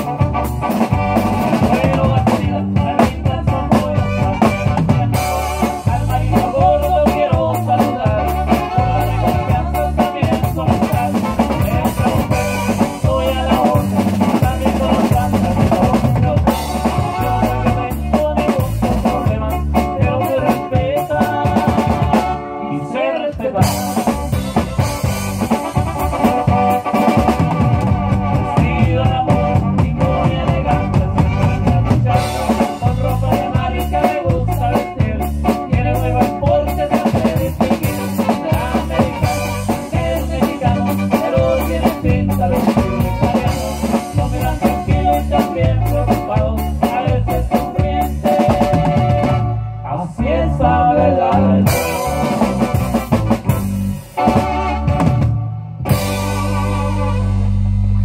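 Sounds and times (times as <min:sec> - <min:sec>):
live rock band music: 0:00.0 - 0:58.0.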